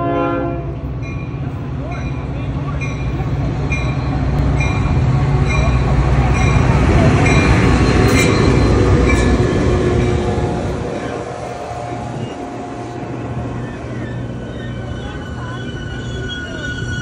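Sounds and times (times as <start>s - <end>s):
diesel locomotive engine rumble: 0.0s - 17.0s
train coaches rolling: 0.0s - 17.0s
locomotive bell ringing: 1.0s - 12.8s, 13.6s - 17.0s
thin steady squeal: 11.9s - 17.0s.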